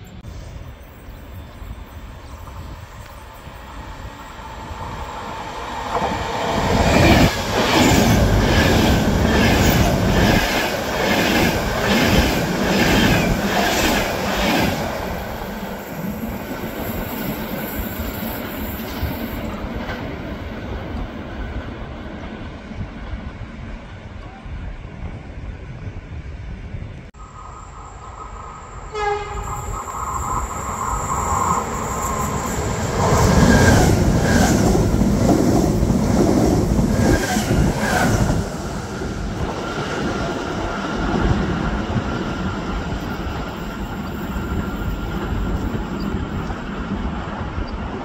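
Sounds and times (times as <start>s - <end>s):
train passing by: 0.0s - 48.0s
high whine: 27.2s - 33.8s
train horn blast: 28.9s - 29.7s.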